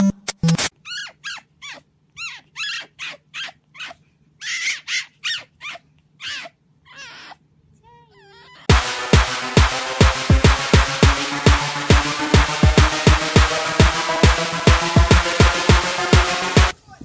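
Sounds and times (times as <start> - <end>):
fox squeaky yips: 0.8 - 7.4.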